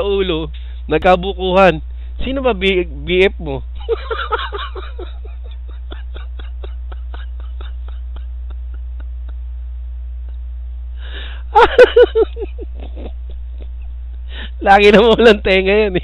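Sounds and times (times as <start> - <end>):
low electrical hum: 0.0 - 16.0
person laughing: 3.8 - 9.4, 11.0 - 15.4.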